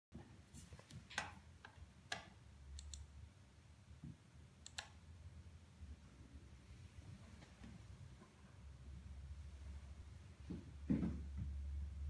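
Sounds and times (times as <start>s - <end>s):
faint sharp clicks: 1.2s - 3.1s, 4.6s - 5.0s.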